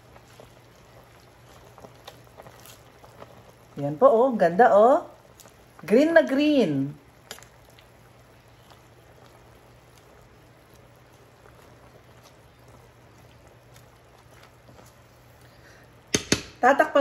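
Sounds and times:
soup simmering in a pot: 0:00.0 - 0:16.7.

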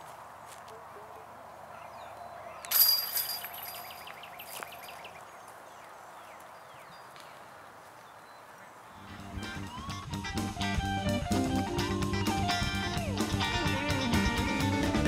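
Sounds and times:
chains jingling and clinking: 0:02.7 - 0:05.1
disc striking metal chains: 0:02.7 - 0:05.1.

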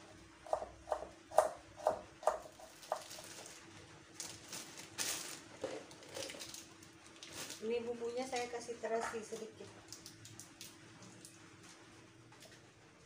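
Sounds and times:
knife chopping on wooden board: 0:00.4 - 0:03.1
plastic bag rustling: 0:02.6 - 0:11.8.

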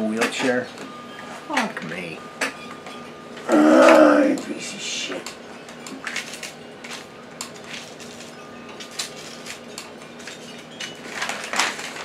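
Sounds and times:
rustling clatter: 0:06.1 - 0:12.0.

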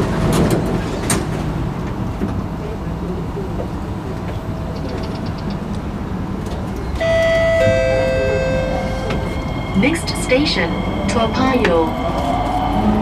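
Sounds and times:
train rumble inside carriage: 0:00.0 - 0:13.0
two-tone chime: 0:07.0 - 0:09.7.

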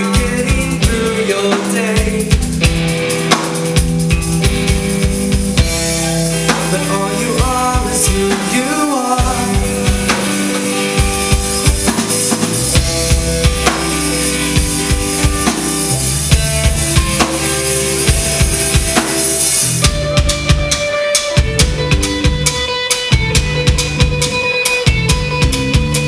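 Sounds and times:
drum kit: 0:00.0 - 0:26.0
electric bass: 0:00.0 - 0:26.0
electric guitar: 0:00.0 - 0:26.0
cymbal wash: 0:08.2 - 0:19.9.

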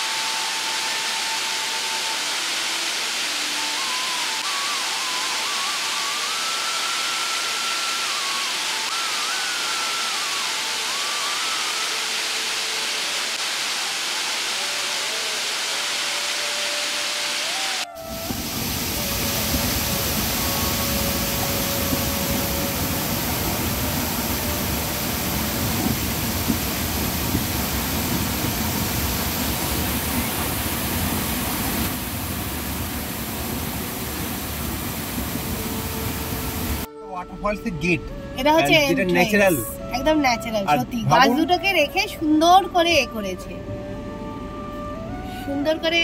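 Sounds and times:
waterfall roaring: 0:00.0 - 0:36.9.

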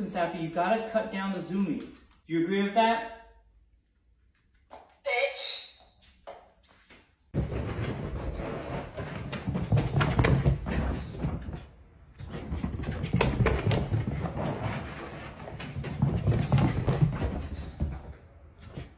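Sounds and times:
dog thudding and scrabbling: 0:07.4 - 0:18.9.

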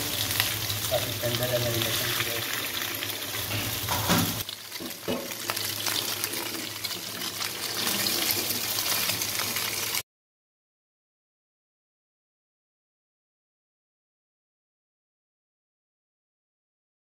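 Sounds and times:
chicken sizzling in pan: 0:00.0 - 0:10.0.

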